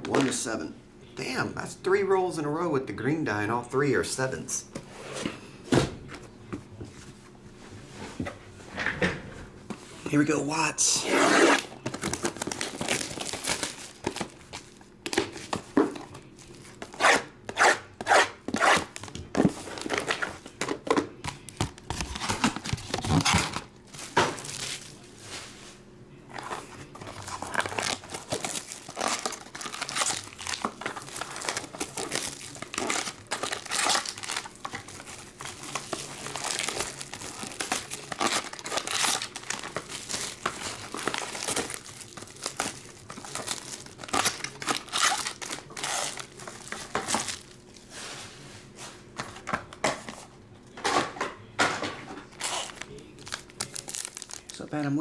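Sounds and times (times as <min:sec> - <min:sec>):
plastic wrap tearing and crinkling: 0:11.0 - 0:25.6, 0:26.3 - 0:47.9, 0:52.2 - 0:54.7.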